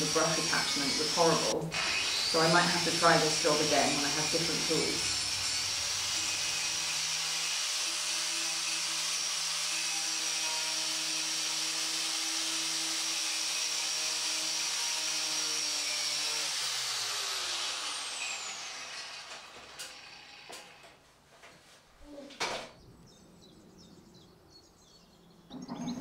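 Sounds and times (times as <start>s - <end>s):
angle grinder whine: 0.0s - 21.0s.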